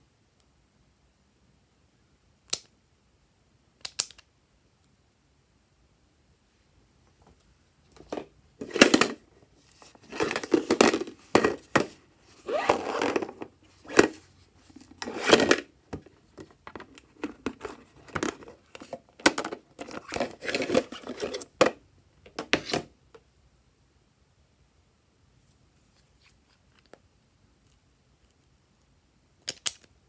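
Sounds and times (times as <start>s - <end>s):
sharp plastic clicks: 3.8s - 4.3s.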